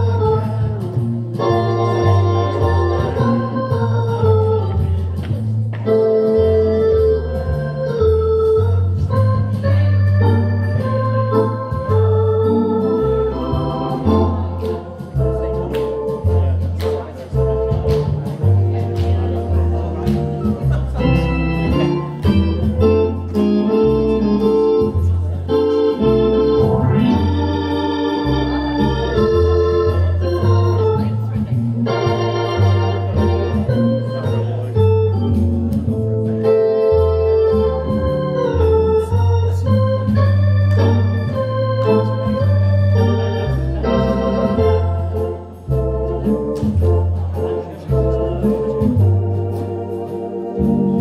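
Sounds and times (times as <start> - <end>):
organ playing: 0.0 - 51.0.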